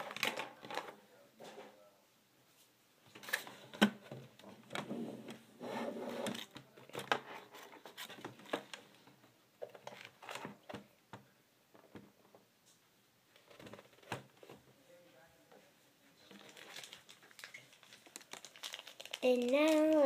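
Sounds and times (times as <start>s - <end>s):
rustling scrape: 5.0s - 6.5s.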